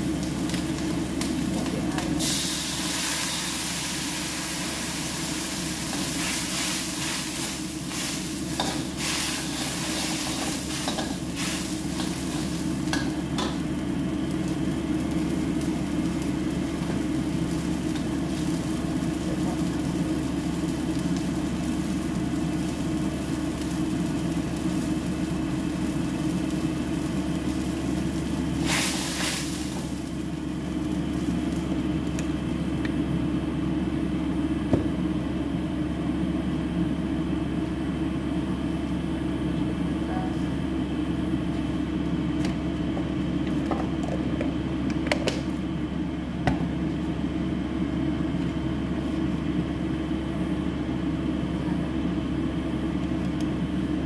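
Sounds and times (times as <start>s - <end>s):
stove burner rushing: 0.0s - 33.0s
food sizzling in a wok: 0.0s - 34.2s.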